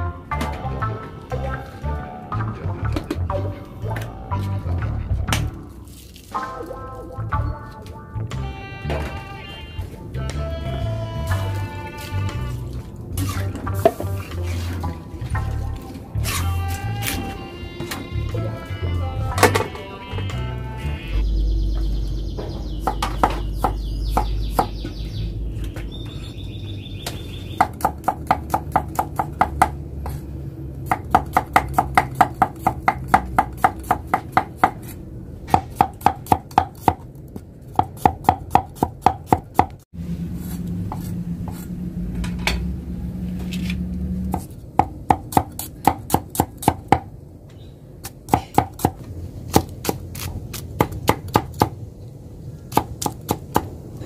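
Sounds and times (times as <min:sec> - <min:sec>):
cleaver chopping on wooden block: 0:27.6 - 0:29.8, 0:30.9 - 0:34.9, 0:35.5 - 0:37.0, 0:37.7 - 0:39.8, 0:44.3 - 0:47.1.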